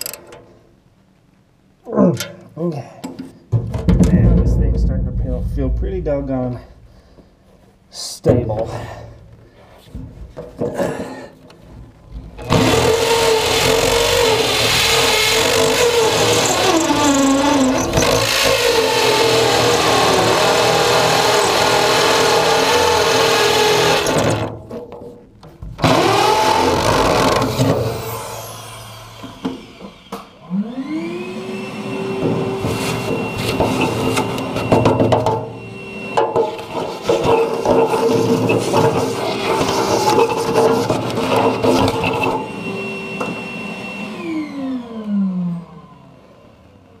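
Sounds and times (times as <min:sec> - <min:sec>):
hammer drill boring into concrete: 0:12.4 - 0:24.5, 0:25.8 - 0:31.0, 0:32.0 - 0:44.8.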